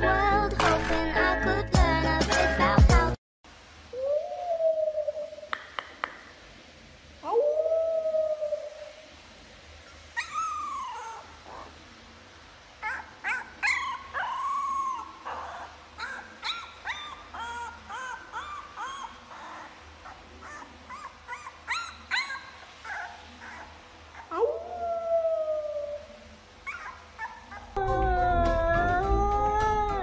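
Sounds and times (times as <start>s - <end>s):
puppy howling: 7.2s - 8.9s, 10.2s - 11.7s, 12.8s - 30.0s
puppy whimpering and yipping: 9.9s - 11.7s, 12.8s - 25.2s, 26.6s - 30.0s.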